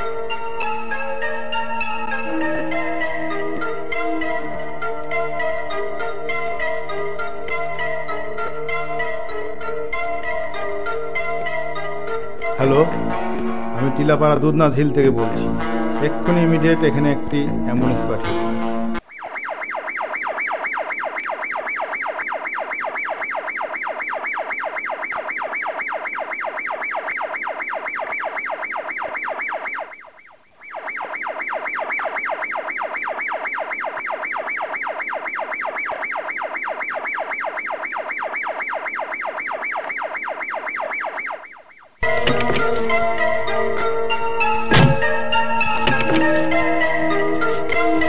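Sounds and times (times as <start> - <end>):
ambulance siren warbling: 19.0 - 48.0.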